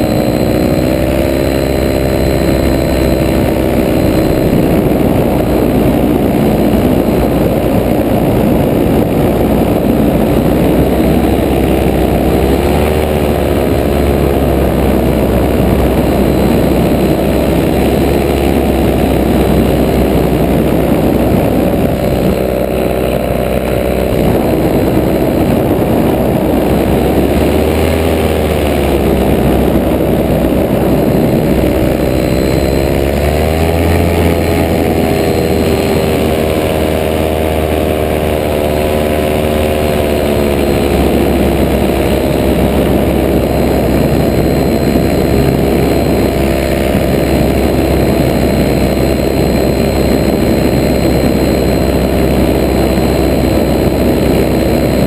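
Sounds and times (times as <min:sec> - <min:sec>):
paramotor engine and propeller: 0:00.0 - 0:55.0
rushing air: 0:00.0 - 0:55.0.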